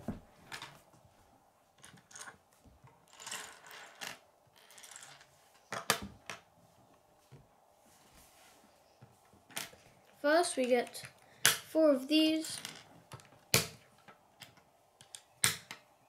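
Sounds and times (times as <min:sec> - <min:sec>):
plastic pieces clicking on wood: 0:12.5 - 0:15.8.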